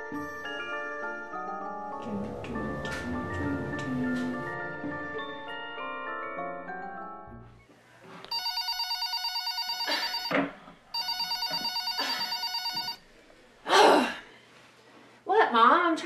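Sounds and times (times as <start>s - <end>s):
phone bell ringtone: 8.3s - 13.0s.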